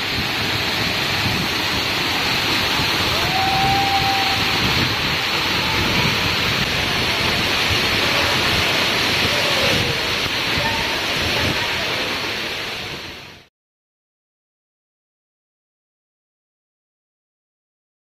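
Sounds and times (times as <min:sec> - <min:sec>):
waterfall rushing and splashing: 0:00.0 - 0:13.5.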